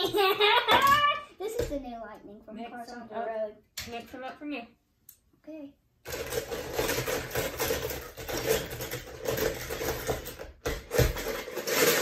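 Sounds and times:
metal toy cars clattering in bowl: 6.1 - 12.0.

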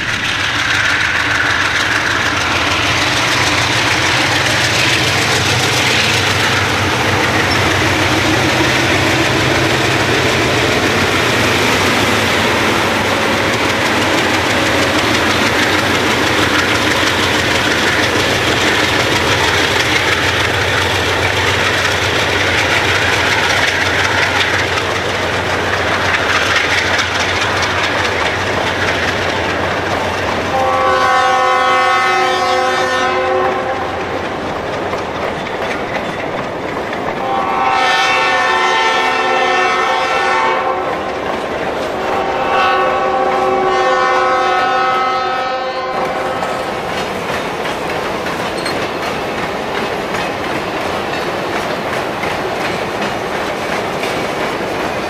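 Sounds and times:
diesel locomotives rumbling past: 0.0 - 55.0
locomotive horn: 30.5 - 34.1, 37.2 - 41.2, 42.0 - 46.7.

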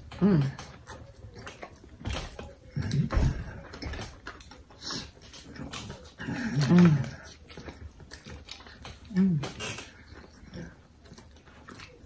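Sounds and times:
chewing and mouth clicks: 0.0 - 12.0.

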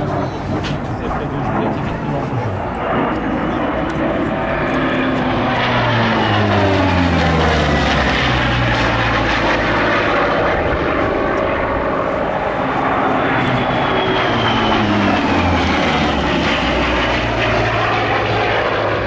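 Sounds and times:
propeller plane flying past: 0.0 - 19.0.

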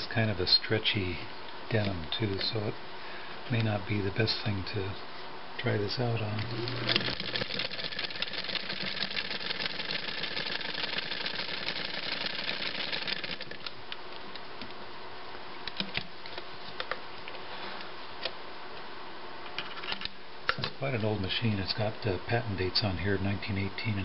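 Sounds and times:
sewing machine clattering: 6.6 - 13.7.

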